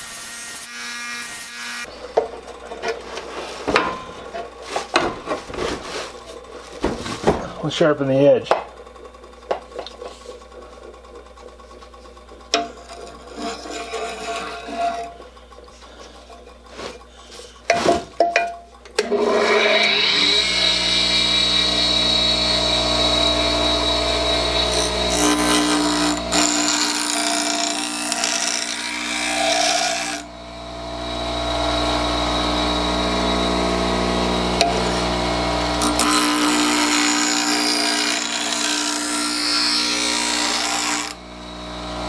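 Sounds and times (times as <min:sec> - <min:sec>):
knocks of handling: 0:02.1 - 0:07.6
blade grinding against wheel: 0:12.8 - 0:15.2, 0:24.2 - 0:30.3, 0:35.8 - 0:41.2
bench grinder motor humming: 0:19.0 - 0:42.0.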